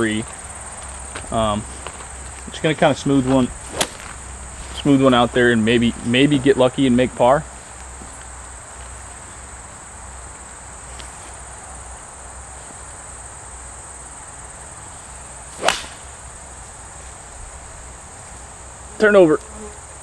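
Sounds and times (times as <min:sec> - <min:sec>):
insects buzzing: 0:00.0 - 0:20.0
golf club striking ball: 0:03.7 - 0:04.2, 0:15.6 - 0:16.2.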